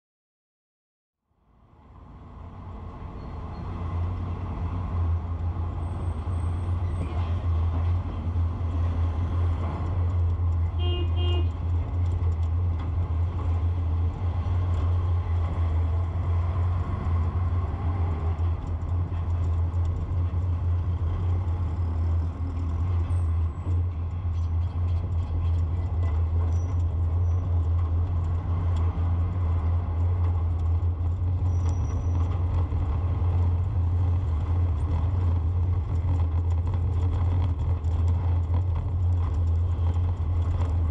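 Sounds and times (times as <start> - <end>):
road noise: 1.2 - 40.9
vehicle engine drone: 1.2 - 40.9
car horn toot: 10.7 - 11.6.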